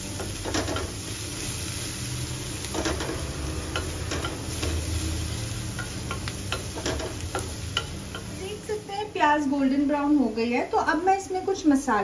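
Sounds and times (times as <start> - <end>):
food sizzling in hot oil: 0.0 - 12.0
spatula scraping and tapping pan: 2.7 - 4.8, 5.8 - 8.4.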